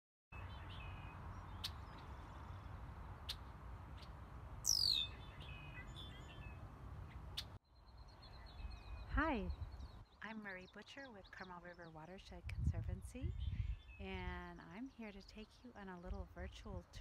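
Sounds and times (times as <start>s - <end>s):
songbirds chirping: 0.4s - 17.0s
bird call sweeping downward: 4.0s - 6.5s.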